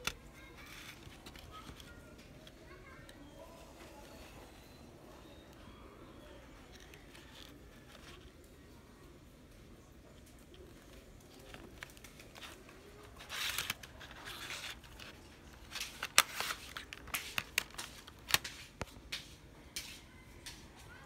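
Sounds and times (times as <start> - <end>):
plastic case scraping rustle: 10.7 - 18.4.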